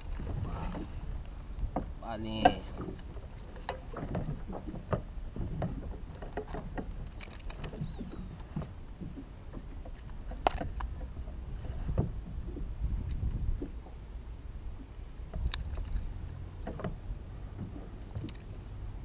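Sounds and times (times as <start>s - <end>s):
steady low rumble: 0.0s - 3.4s, 8.4s - 19.0s
water slapping kayak hull: 0.0s - 19.0s.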